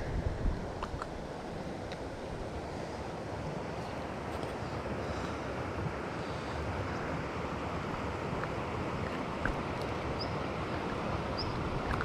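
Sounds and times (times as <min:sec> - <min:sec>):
wind buffeting microphone: 0:00.0 - 0:02.6.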